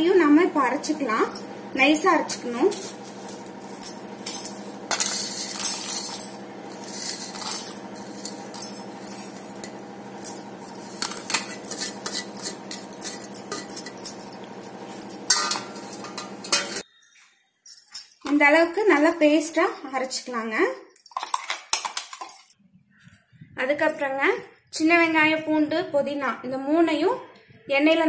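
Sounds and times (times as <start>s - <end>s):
steady low hum: 0.0s - 16.8s
clinks of steel on steel: 10.4s - 16.8s.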